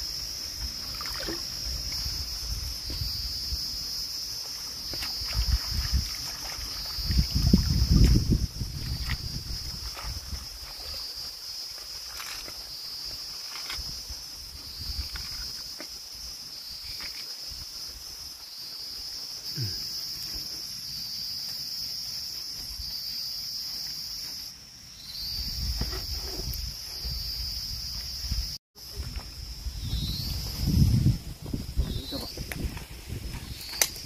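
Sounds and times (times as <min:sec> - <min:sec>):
high-pitched insect chorus: 0:00.0 - 0:34.0.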